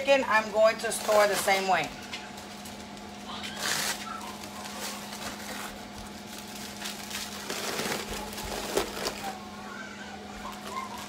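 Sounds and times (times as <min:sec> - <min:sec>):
plastic bags crinkling: 0:00.8 - 0:09.4.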